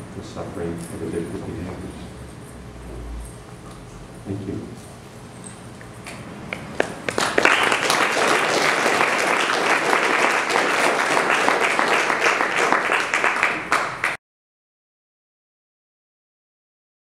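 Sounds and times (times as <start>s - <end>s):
audience applauding: 6.8s - 14.2s.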